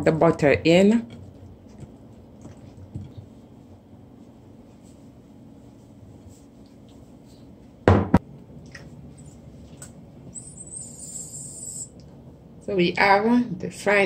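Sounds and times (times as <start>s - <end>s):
loud knock: 7.9s - 8.2s.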